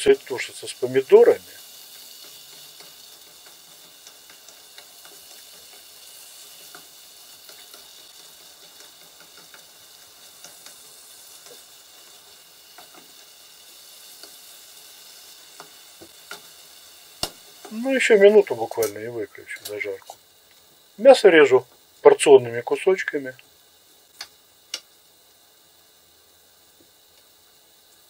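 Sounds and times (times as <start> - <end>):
food sizzling in a frying pan: 0.0 - 28.0.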